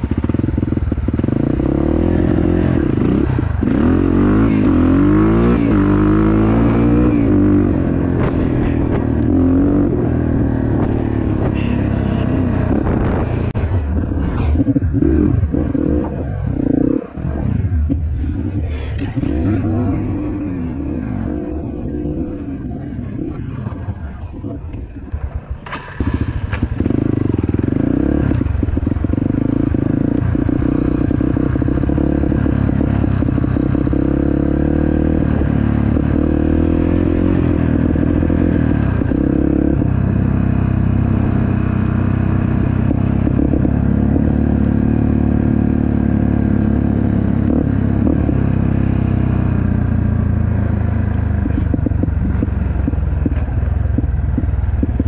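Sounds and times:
off-road vehicle engine: 0:00.0 - 0:55.0.

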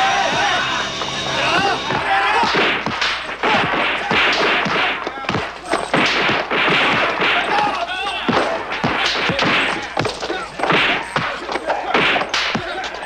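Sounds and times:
punch sound effects: 0:00.0 - 0:05.4.

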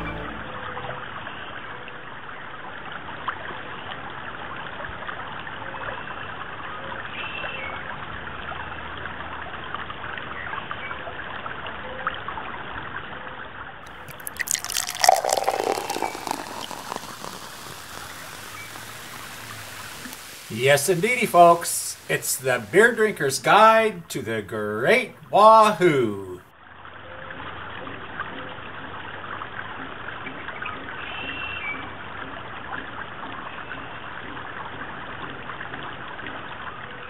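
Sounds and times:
creek rushing over rocks: 0:16.4 - 0:24.4.

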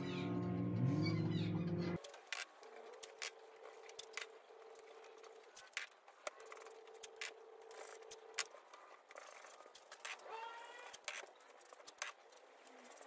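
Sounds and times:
masking tape crackling: 0:01.9 - 0:13.0.

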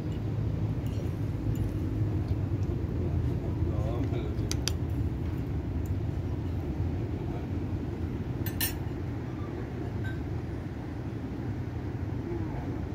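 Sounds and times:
tableware clinking: 0:00.0 - 0:01.8, 0:08.4 - 0:09.0, 0:10.0 - 0:10.3
steady low rumble: 0:00.0 - 0:12.9.

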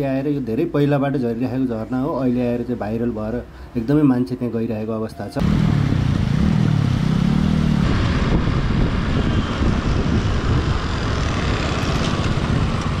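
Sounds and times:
motorcycle engines running: 0:05.4 - 0:13.0.

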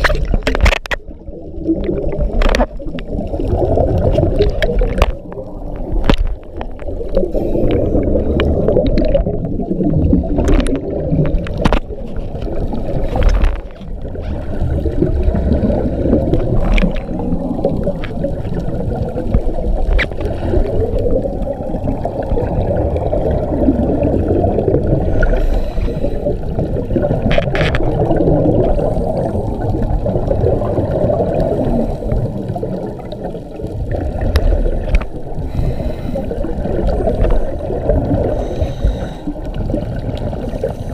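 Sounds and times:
sharp clicks and knocks: 0:00.0 - 0:01.1
muffled gurgling water: 0:00.0 - 0:40.9.

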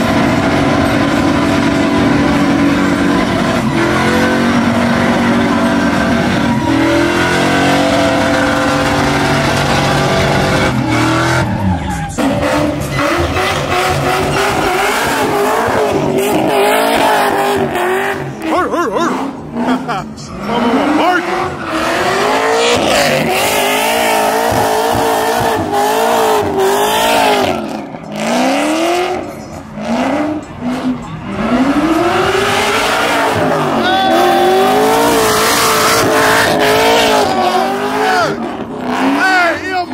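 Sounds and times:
pickup engine revving hard: 0:00.0 - 0:39.9
tyres squealing: 0:03.0 - 0:24.4, 0:32.6 - 0:39.9.

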